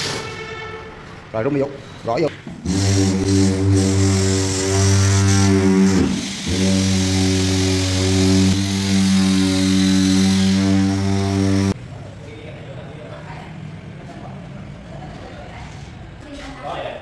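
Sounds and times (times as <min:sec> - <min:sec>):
electric power tool buzzing: 0:02.6 - 0:11.8.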